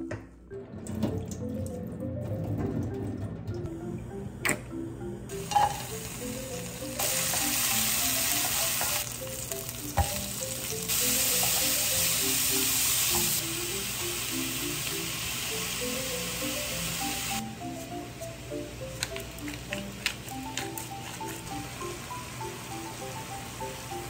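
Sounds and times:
onion sizzling in oil: 5.3s - 17.4s.

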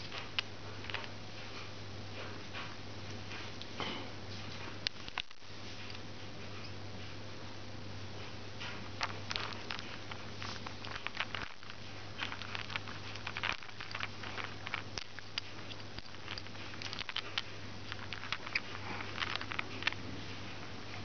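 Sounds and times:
plastic toy balls clicking: 9.0s - 20.0s.

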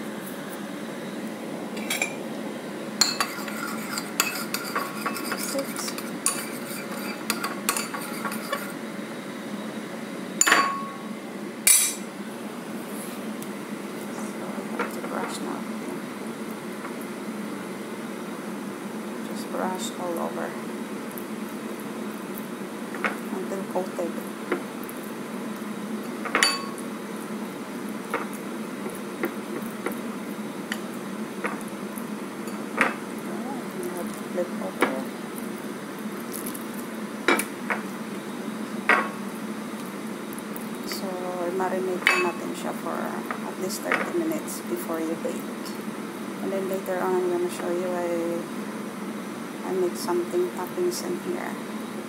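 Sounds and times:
steady background hiss: 0.0s - 52.0s
spoon scraping ceramic bowl: 3.0s - 8.8s.

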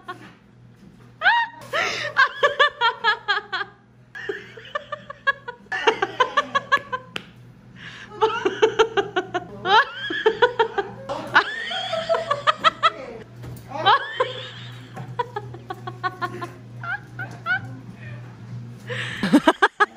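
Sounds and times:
woman laughing hard: 1.2s - 7.1s, 8.0s - 13.2s, 13.8s - 17.8s, 18.9s - 19.9s
woman breathing: 7.7s - 8.2s, 18.9s - 19.3s.

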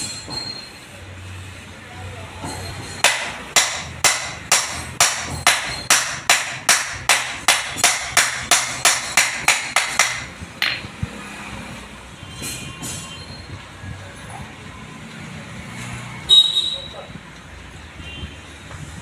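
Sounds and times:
hammer beating on metal: 2.4s - 10.9s.

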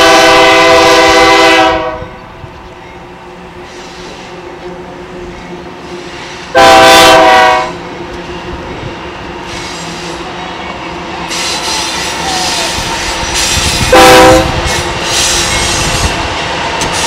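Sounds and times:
locomotive horn blast: 0.0s - 2.2s, 6.4s - 7.9s, 13.8s - 16.2s
locomotive engines rumbling: 0.0s - 17.0s.

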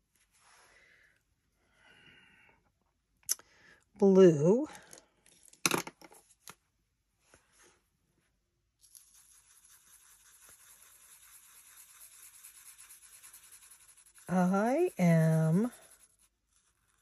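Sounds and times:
pen scratching on paper: 8.9s - 17.0s.

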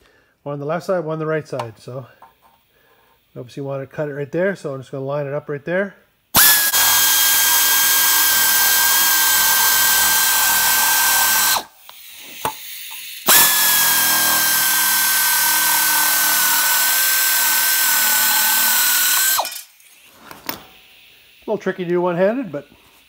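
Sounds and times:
air shears cutting sheet steel: 6.4s - 20.8s.

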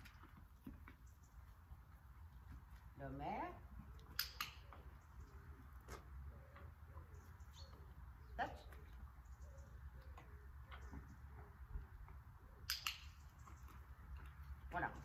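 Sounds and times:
sharp click: 4.1s - 4.7s, 12.6s - 13.2s.

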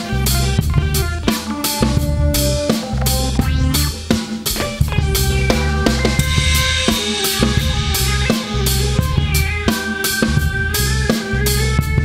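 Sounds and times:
bass drum and snare beat: 0.0s - 12.0s
industrial rock music: 0.0s - 12.0s
pulsing synth bass: 2.1s - 6.8s.

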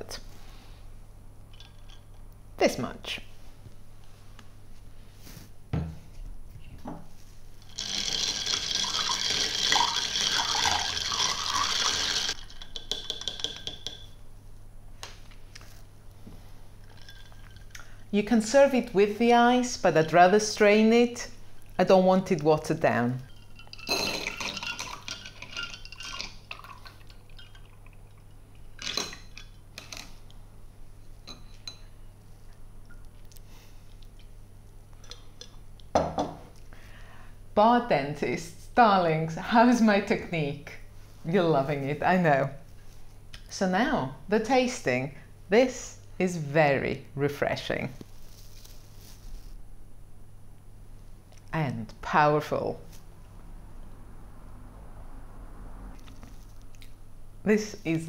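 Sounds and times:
liquid splashing and trickling: 7.7s - 12.7s, 23.2s - 29.4s
ice cubes clinking in a glass: 7.7s - 14.2s, 16.9s - 17.8s, 23.3s - 27.8s.

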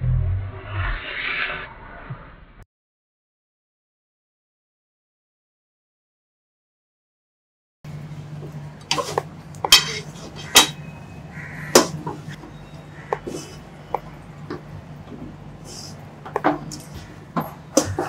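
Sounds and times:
low steady hum: 7.9s - 18.0s
spatula scraping a metal pan: 8.9s - 10.8s.

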